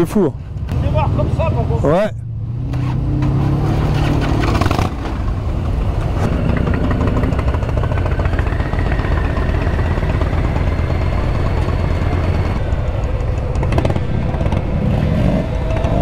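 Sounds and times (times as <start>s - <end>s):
motorcycle engines rumbling: 0.0s - 16.0s.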